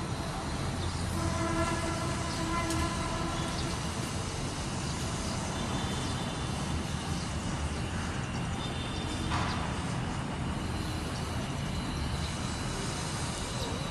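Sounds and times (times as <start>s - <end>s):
distant city traffic rumble: 0.0s - 13.9s
vehicle horn: 0.3s - 4.1s.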